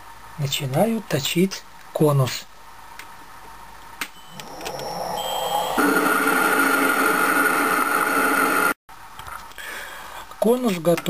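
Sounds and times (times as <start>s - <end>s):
metal lathe whining: 4.4s - 8.8s.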